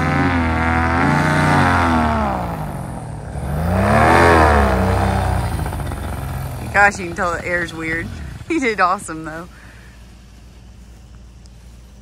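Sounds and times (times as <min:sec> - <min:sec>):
paramotor engine revving: 0:00.0 - 0:12.0.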